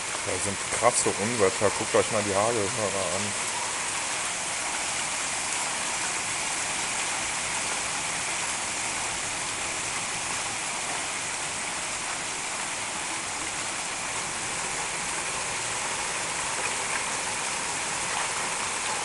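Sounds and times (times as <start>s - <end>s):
heavy rain and hail: 0.0s - 19.0s.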